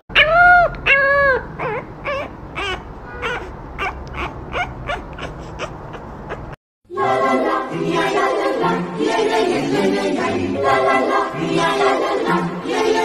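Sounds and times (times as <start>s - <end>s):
puppy crying: 0.1s - 6.6s
puppy whimpering: 0.1s - 6.6s.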